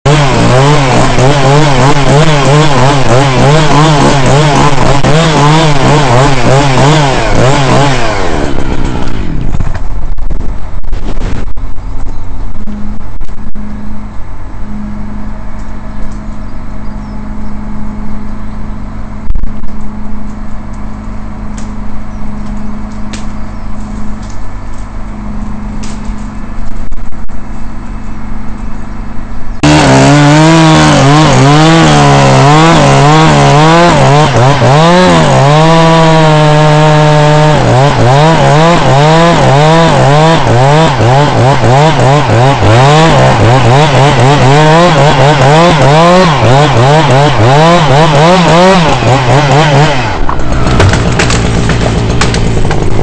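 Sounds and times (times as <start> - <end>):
chainsaw idling: 0.1 - 9.6, 29.6 - 53.0
chainsaw cutting wood: 0.1 - 10.0, 29.6 - 53.0.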